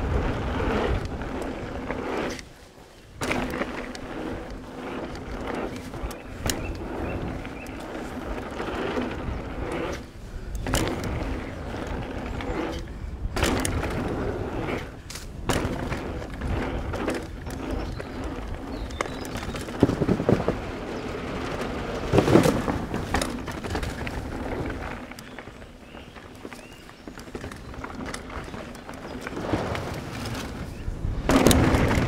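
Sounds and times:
wind on microphone: 0:00.0 - 0:02.4, 0:29.2 - 0:32.0
bike knocking and rattling: 0:00.0 - 0:32.0
bike tyres rumbling over dirt: 0:00.0 - 0:32.0.

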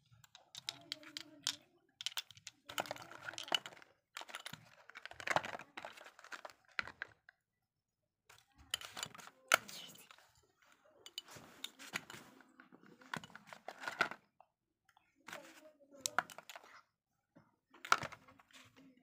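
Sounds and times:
small plastic and glass items clicking: 0:00.0 - 0:07.3, 0:08.3 - 0:10.2, 0:11.1 - 0:12.3, 0:15.3 - 0:16.8, 0:17.8 - 0:18.2.

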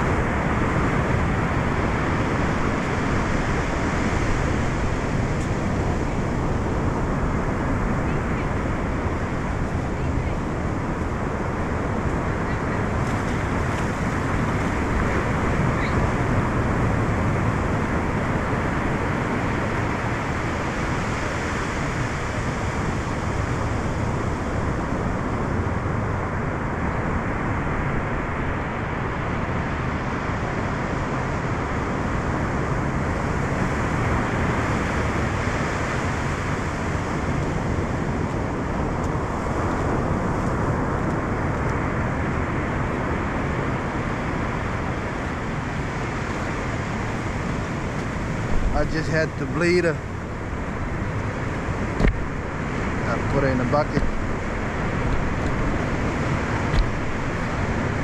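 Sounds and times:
ocean surf on sandy beach: 0:00.0 - 0:58.0.

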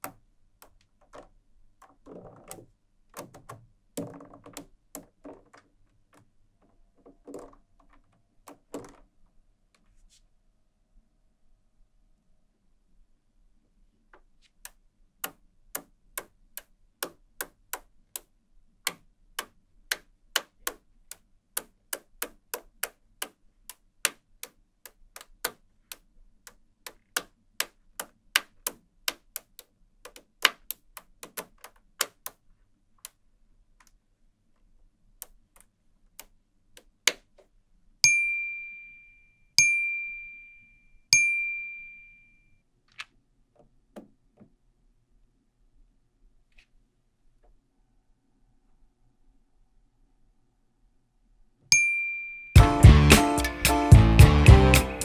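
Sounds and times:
magnetic balls clicking: 0:00.0 - 0:09.0, 0:14.6 - 0:32.4
ringing dings: 0:38.0 - 0:42.6, 0:51.7 - 0:52.6.

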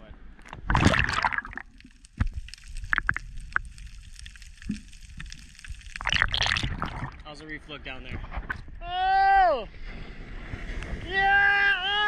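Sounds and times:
underwater clicks and pops: 0:00.4 - 0:07.2
splashing and bubbling: 0:00.4 - 0:07.4.

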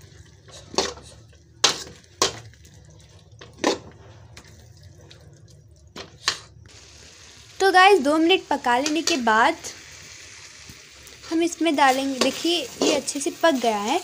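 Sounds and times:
sauce simmering: 0:00.0 - 0:14.0.

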